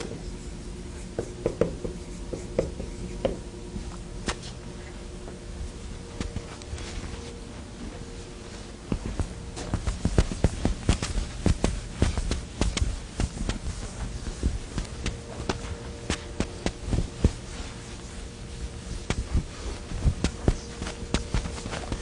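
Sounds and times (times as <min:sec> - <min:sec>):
faint steady hum: 0:00.0 - 0:22.0
sharp taps and clicks: 0:09.8 - 0:13.6.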